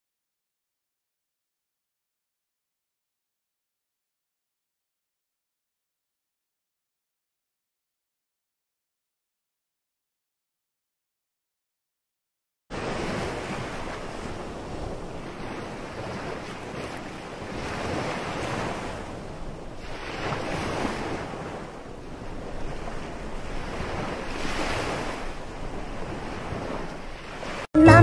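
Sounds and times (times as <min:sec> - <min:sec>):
ocean surf washing onto beach: 0:12.7 - 0:28.0.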